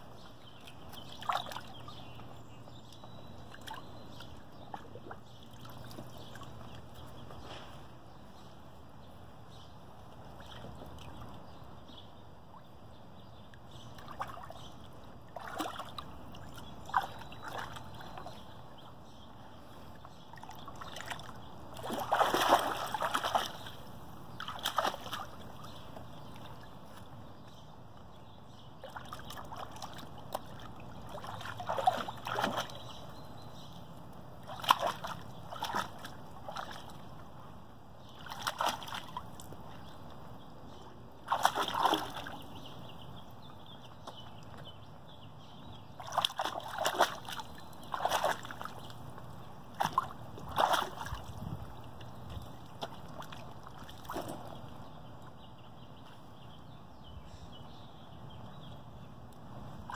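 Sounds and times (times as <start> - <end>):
water splashing in a pool: 0.0 - 7.4, 10.1 - 11.7, 13.6 - 19.0, 20.0 - 27.4, 28.0 - 40.3, 41.0 - 44.7, 45.9 - 55.4.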